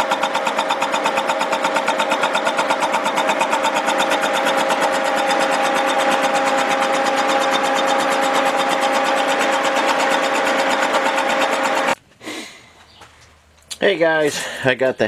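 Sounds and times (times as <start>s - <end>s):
milling machine running: 0.0s - 12.0s.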